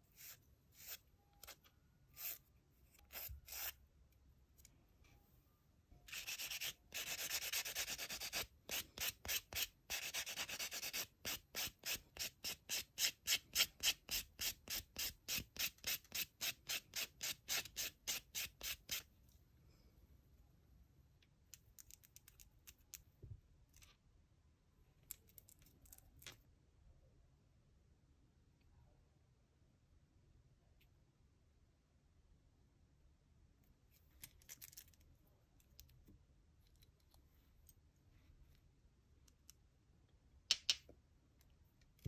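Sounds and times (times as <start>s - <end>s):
sanding block rubbing nails: 6.1s - 19.0s.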